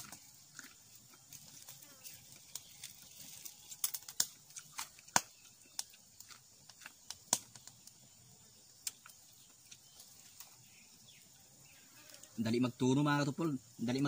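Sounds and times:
wood fire crackling and popping: 0:02.4 - 0:08.0.

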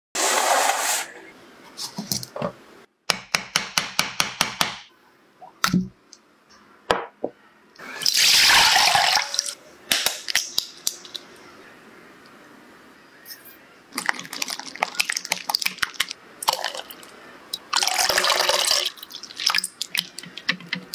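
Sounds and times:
liquid pouring: 0:14.0 - 0:20.6.

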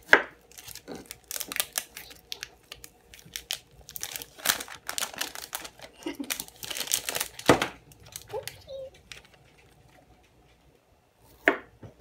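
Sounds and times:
wrapper crinkling: 0:00.4 - 0:10.0.

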